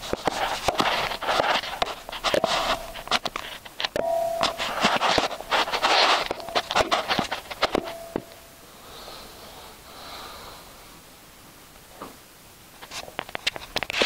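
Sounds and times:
phone handling clicks and rustles: 0.0s - 8.4s
soft breathing: 7.9s - 11.1s.

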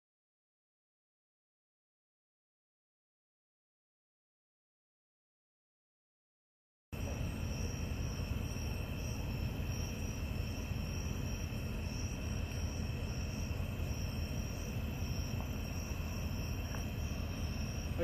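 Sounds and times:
crickets chirping: 7.0s - 18.0s.

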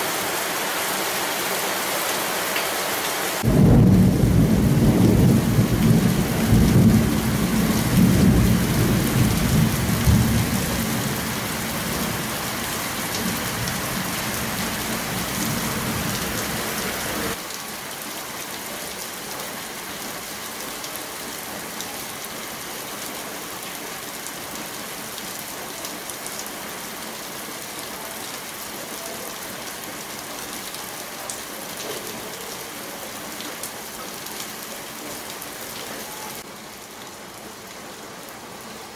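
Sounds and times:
heavy rain: 0.0s - 38.9s
water streaming off metal roof: 0.0s - 38.9s
rolling thunder rumble: 3.4s - 11.3s.

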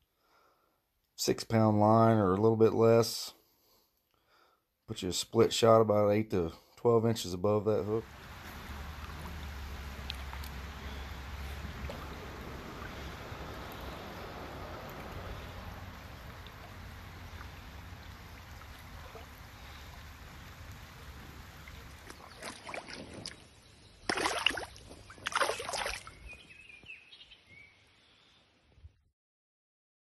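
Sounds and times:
wind: 5.0s - 29.1s
moving water hiss: 7.7s - 26.2s
water splashing from wading: 8.0s - 26.2s.

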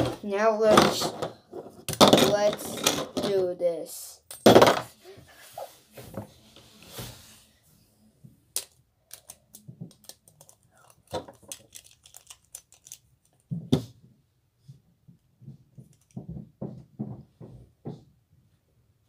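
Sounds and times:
plastic parts clicking: 8.6s - 13.5s.

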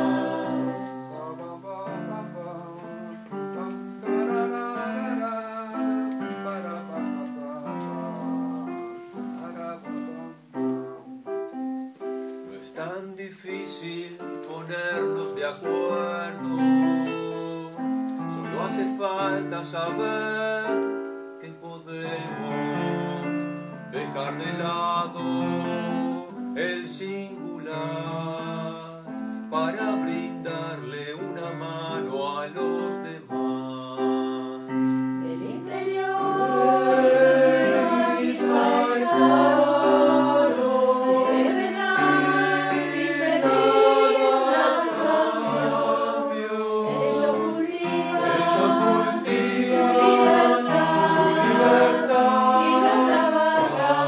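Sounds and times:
voices singing: 0.0s - 10.7s, 12.5s - 54.0s
keyboard playing chords: 35.3s - 54.0s.

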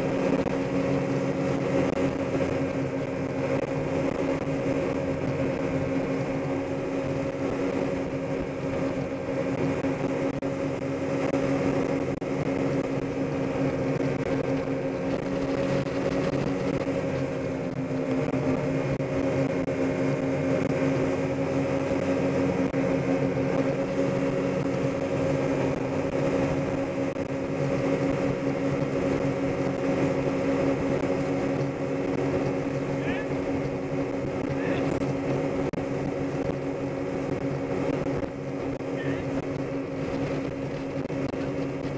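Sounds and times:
churning wake water: 0.0s - 41.9s
motorboat engine drone: 0.0s - 41.9s.

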